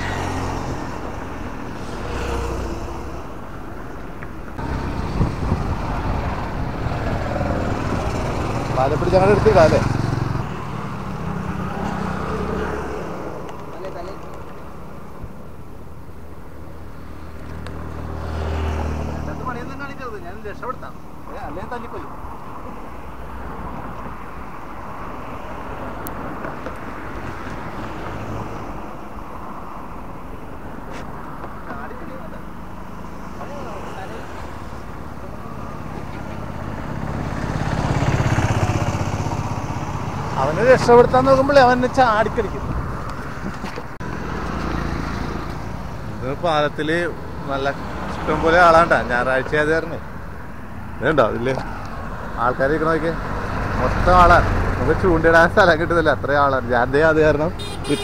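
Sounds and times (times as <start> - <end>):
car driving past: 0.0 - 3.4, 17.5 - 19.9
motorbike driving past: 0.0 - 3.4, 4.6 - 13.5, 17.4 - 19.9, 33.4 - 42.7
cars driving past: 0.0 - 58.0.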